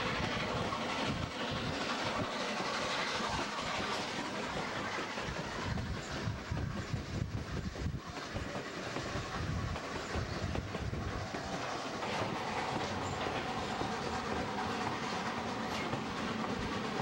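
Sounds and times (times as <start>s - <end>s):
train low rumble: 0.0s - 17.0s
train wheels clattering over rail joints: 0.0s - 17.0s.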